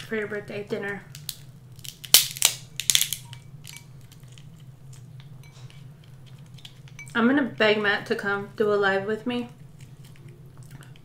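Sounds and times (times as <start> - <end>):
crab shell cracking: 1.1 - 5.4.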